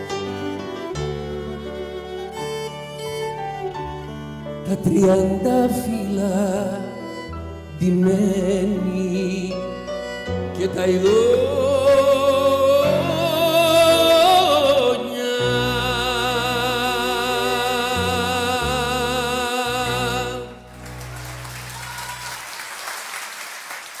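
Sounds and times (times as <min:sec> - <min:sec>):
violin and double bass chord: 0:00.0 - 0:21.6
man singing with vibrato: 0:04.6 - 0:20.7
audience applause: 0:20.6 - 0:24.0.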